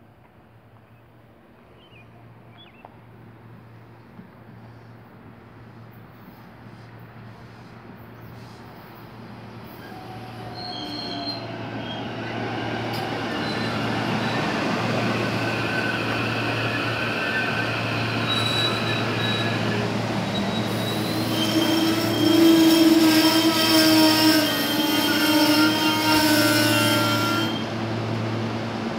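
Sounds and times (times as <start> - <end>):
electric train passing: 4.6 - 28.9
high squealing brakes: 8.1 - 27.7.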